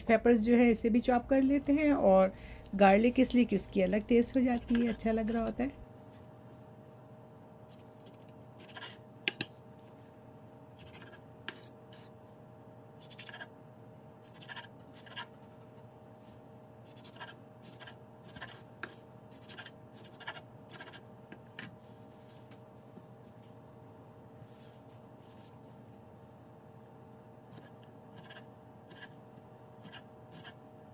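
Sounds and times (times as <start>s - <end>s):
faint steady hum: 0.0s - 30.9s
knife tapping on board: 9.2s - 9.6s.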